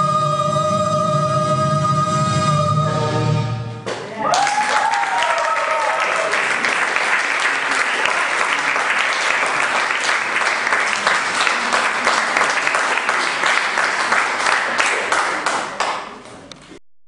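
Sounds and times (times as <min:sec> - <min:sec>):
audience applauding: 0:04.2 - 0:16.2.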